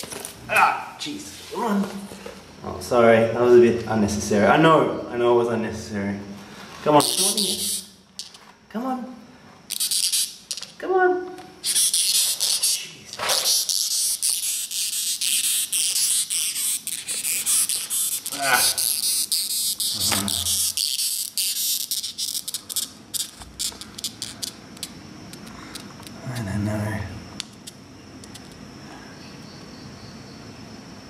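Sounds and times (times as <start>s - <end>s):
beetle rasping squeak: 7.0s - 7.9s, 11.6s - 25.8s.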